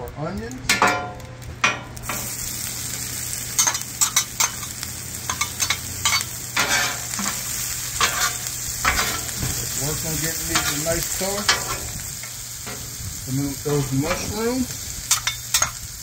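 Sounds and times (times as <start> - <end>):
onions sizzling on a griddle: 0.0 - 16.0
metal spatula scraping griddle: 3.6 - 14.5.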